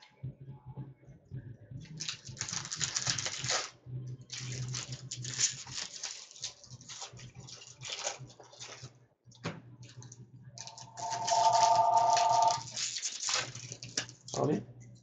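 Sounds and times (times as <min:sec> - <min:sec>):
electronic telephone ringing: 0:10.6 - 0:12.6
steady low hum: 0:10.6 - 0:12.6.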